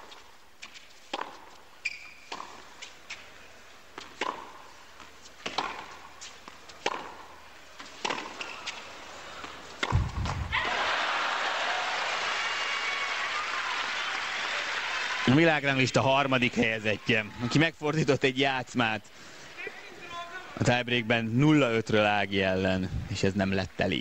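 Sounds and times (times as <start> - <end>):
racket striking ball: 1.1 - 1.5, 2.3 - 2.6, 4.0 - 4.6, 5.4 - 6.1, 6.8 - 8.8, 9.4 - 10.6
shoe squeaks: 1.8 - 3.3
crowd applauding: 10.6 - 15.8.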